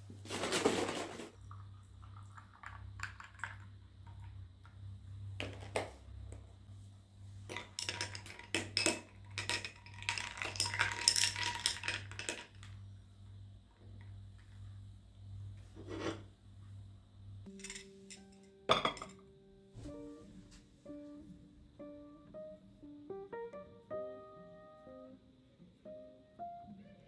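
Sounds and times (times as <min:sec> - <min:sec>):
steady low hum: 0:01.3 - 0:09.5, 0:12.6 - 0:22.9
dishes and utensils clattering: 0:17.5 - 0:19.2.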